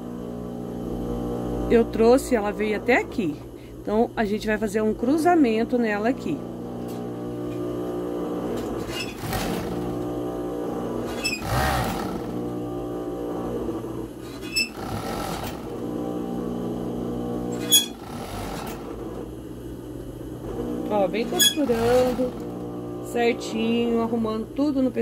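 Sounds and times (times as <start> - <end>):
sewing machine running: 5.9 - 19.4, 20.4 - 24.4.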